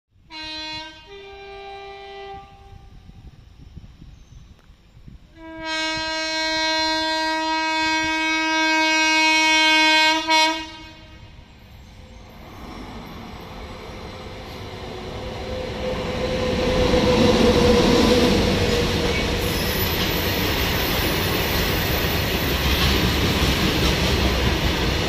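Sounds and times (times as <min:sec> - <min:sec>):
train air horn blasts: 0:00.2 - 0:03.2, 0:05.3 - 0:11.4
train rumble: 0:00.2 - 0:25.0.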